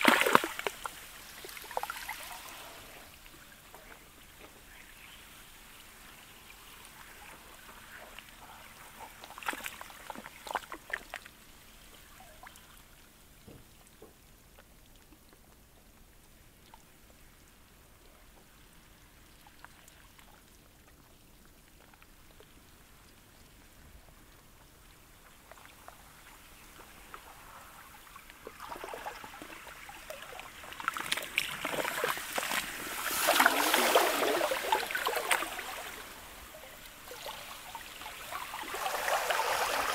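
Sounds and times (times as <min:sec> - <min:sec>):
water trickling among ice: 0:00.0 - 0:39.9
wash of water and ice: 0:28.5 - 0:39.9.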